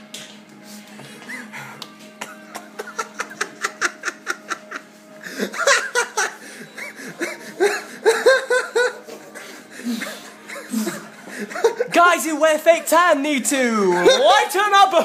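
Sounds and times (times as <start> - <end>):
person laughing: 1.1 - 11.9.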